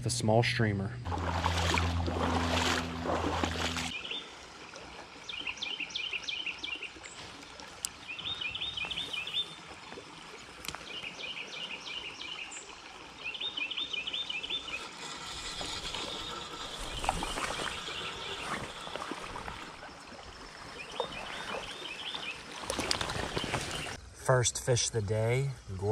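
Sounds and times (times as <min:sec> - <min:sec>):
songbird singing: 0:01.0 - 0:04.3, 0:05.2 - 0:07.1, 0:07.8 - 0:09.7, 0:10.6 - 0:15.3, 0:15.9 - 0:24.1
creek water flowing: 0:01.0 - 0:24.0.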